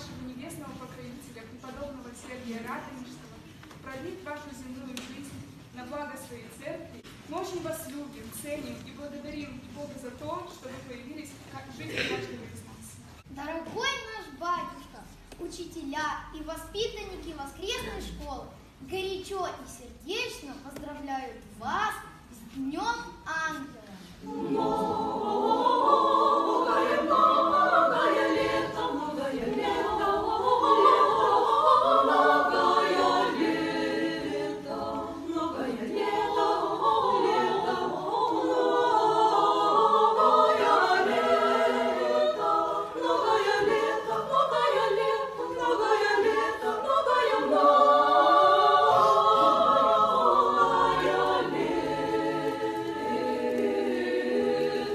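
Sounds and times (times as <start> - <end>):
choir singing a cappella: 24.1 - 54.9.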